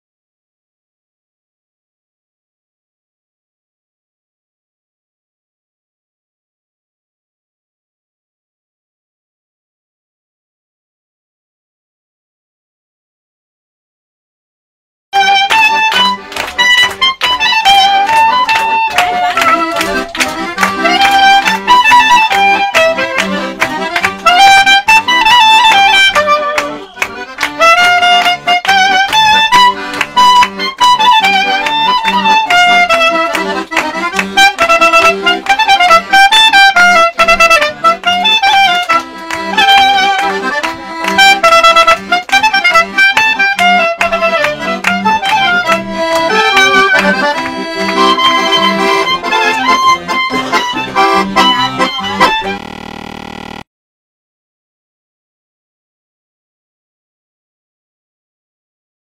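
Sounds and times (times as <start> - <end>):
clarinet melody: 15.2 - 53.6
accordion chords: 15.2 - 53.7.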